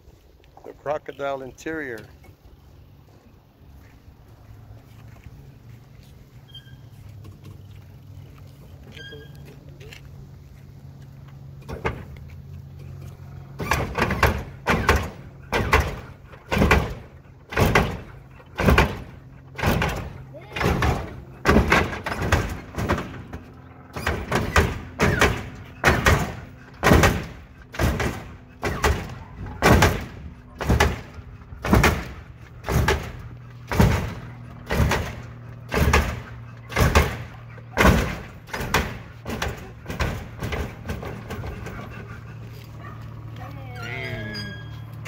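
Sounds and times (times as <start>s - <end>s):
steady low hum: 0.0s - 45.0s
hydraulic suspension clunking: 6.0s - 43.3s.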